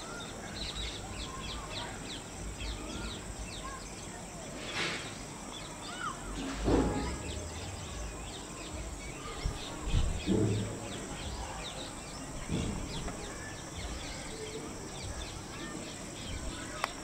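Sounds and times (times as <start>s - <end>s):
small birds chirping: 0.0s - 17.0s
low rumbles on microphone: 6.6s - 14.1s.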